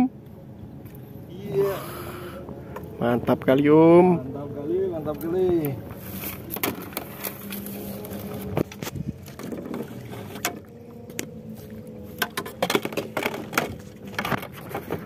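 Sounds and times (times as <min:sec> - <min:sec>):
faint steady hum: 0:00.0 - 0:15.0
knocks and rubbing in wooden boat: 0:08.4 - 0:11.3, 0:12.1 - 0:15.0.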